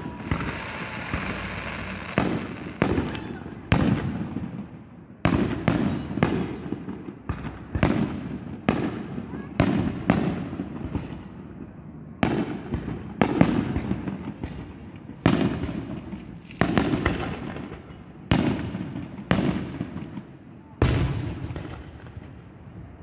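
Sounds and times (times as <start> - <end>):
firework shells bursting: 0.0 - 3.1.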